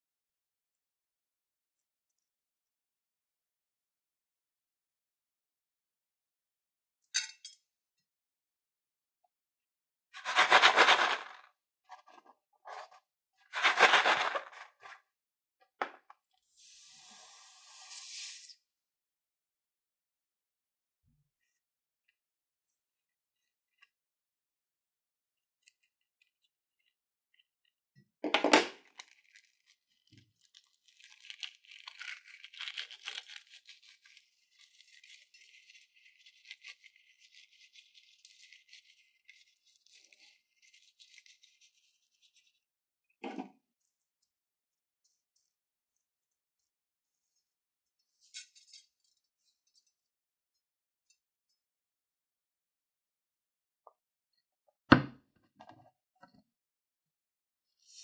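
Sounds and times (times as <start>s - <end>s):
air hissing from balloon: 16.6s - 18.5s.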